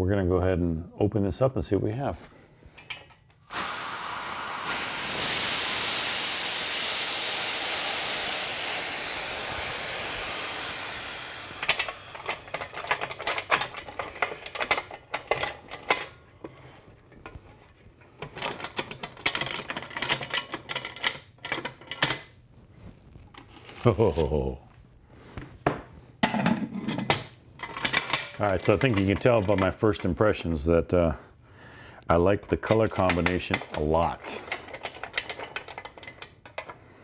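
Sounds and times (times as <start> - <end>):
metallic clicks and clanks of clamps: 2.8 - 3.4, 11.6 - 16.2, 18.2 - 22.3, 27.0 - 29.8, 32.4 - 36.8
compressed air hissing from valve: 3.4 - 13.4.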